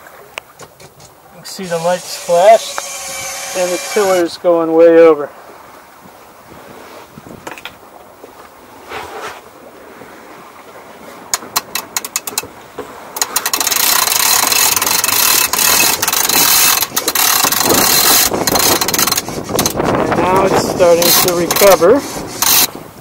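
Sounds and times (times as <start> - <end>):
winch ratchet clicks: 11.3 - 12.5, 13.2 - 19.8, 20.4 - 22.7.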